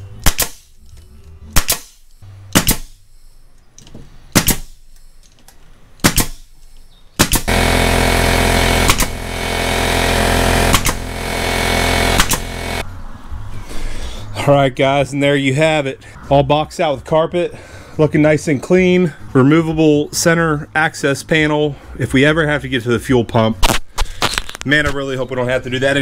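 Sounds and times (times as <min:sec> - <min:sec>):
pneumatic stapler shots: 0:00.2 - 0:00.8, 0:01.5 - 0:03.1, 0:04.3 - 0:05.0, 0:06.0 - 0:09.4, 0:10.5 - 0:11.3, 0:12.0 - 0:12.8.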